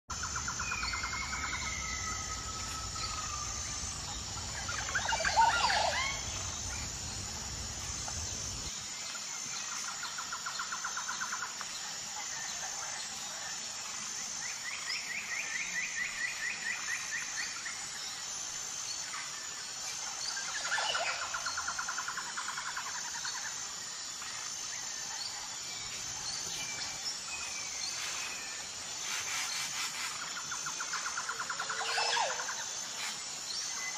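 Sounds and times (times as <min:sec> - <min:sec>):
outdoor background: 0:00.0 - 0:33.9
birds trilling: 0:00.2 - 0:08.7.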